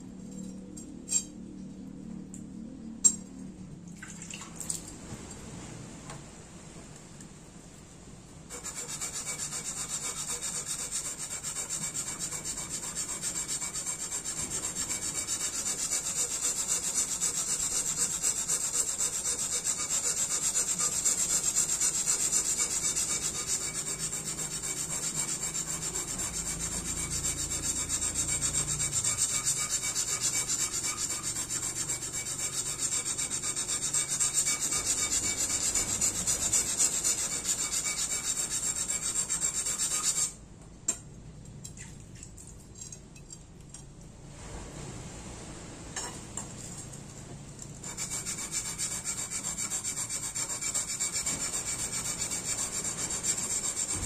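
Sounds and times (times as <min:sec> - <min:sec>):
steel scraping on whetstone: 0:08.5 - 0:41.0, 0:46.0 - 0:46.8, 0:47.8 - 0:54.0.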